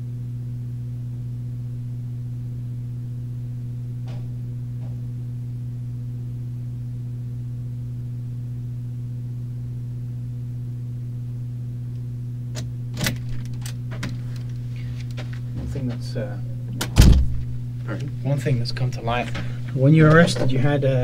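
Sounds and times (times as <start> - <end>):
electrical mains hum: 0.0 - 21.0
door latch clicks: 12.6 - 14.1.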